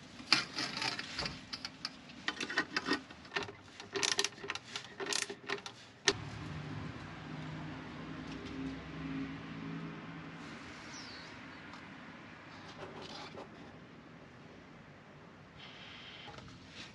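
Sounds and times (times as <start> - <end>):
vehicle engine hum: 6.0 - 14.5.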